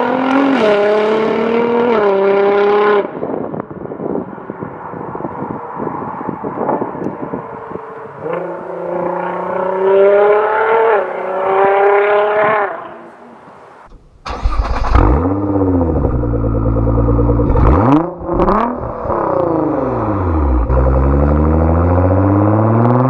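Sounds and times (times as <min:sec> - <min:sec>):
car engine revving: 0:13.9 - 0:23.0
car engine accelerating hard: 0:14.3 - 0:23.0.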